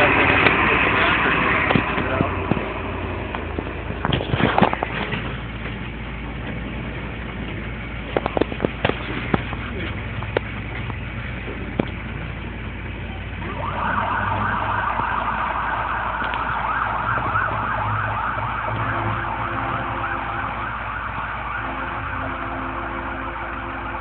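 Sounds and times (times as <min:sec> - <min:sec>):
truck engine rumble: 0:00.0 - 0:24.0
siren yelping: 0:13.4 - 0:24.0
low steady horn tone: 0:17.3 - 0:24.0.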